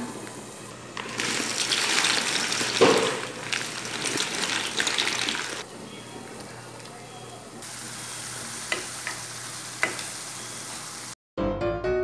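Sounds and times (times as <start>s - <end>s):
water boiling in pot: 0.0s - 9.1s.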